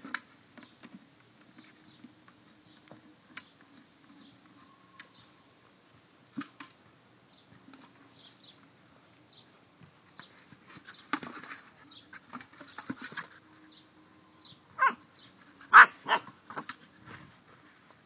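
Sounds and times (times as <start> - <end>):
plastic bucket scraping on grass: 10.1 - 13.8
puppy yipping: 14.8 - 15.0, 15.7 - 16.3.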